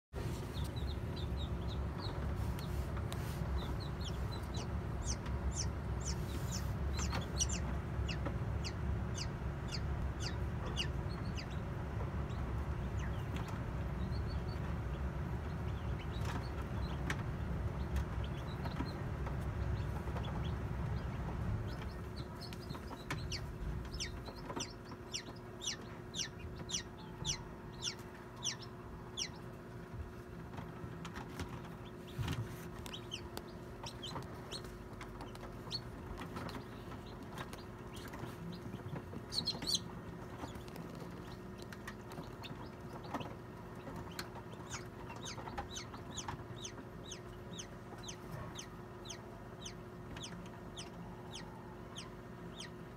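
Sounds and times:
low rumble: 0:00.2 - 0:27.9
chick peeping: 0:00.2 - 0:52.9
steady hum: 0:00.2 - 0:52.9.

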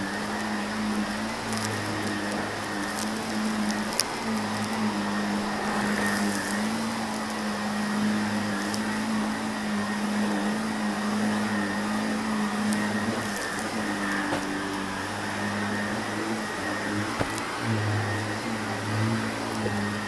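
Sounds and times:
upright vacuum cleaner running: 0:00.0 - 0:20.0
debris crunching into vacuum: 0:00.3 - 0:09.9.

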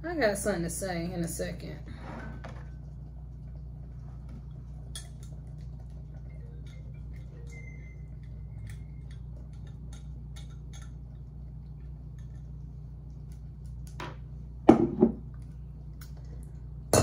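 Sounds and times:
objects knocking on table: 0:14.0 - 0:15.2.

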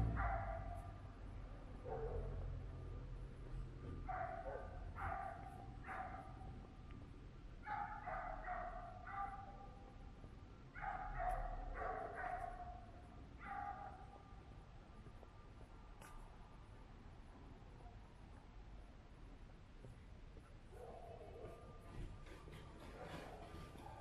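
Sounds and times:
dog barking: 0:00.0 - 0:01.0, 0:01.8 - 0:02.5, 0:04.0 - 0:06.5, 0:07.6 - 0:09.8, 0:10.7 - 0:14.4, 0:20.7 - 0:21.8.

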